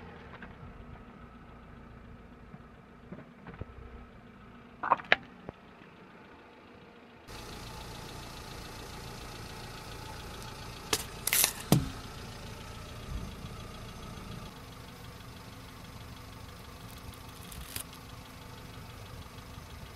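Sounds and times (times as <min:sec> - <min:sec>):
car engine idling: 0:00.0 - 0:19.9
sachets bursting with pops: 0:10.9 - 0:11.9
dull thud: 0:11.0 - 0:12.1.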